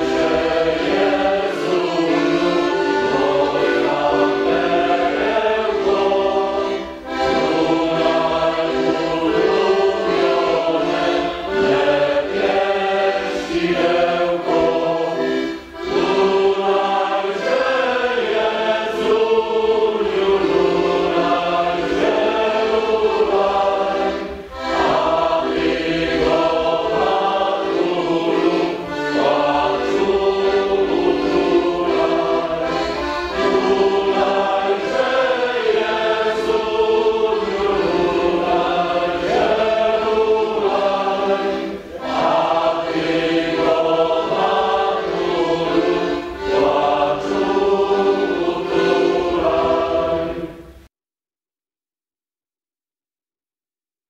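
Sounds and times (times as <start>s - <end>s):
choir singing: 0.0s - 50.9s.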